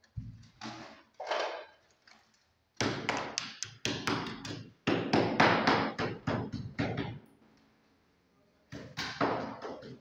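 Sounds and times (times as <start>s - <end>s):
hammer striking masonry wall: 2.8s - 7.3s, 8.7s - 10.0s.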